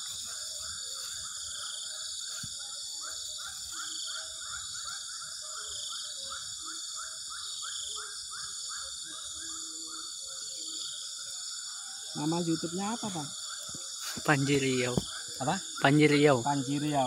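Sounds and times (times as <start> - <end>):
insect chirping: 0.0 - 17.0
insects droning: 0.0 - 17.0.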